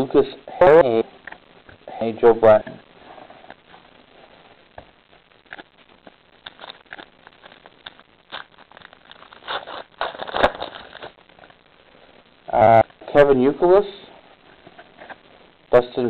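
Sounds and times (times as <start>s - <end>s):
card pack wrapper crinkling: 6.4s - 11.6s.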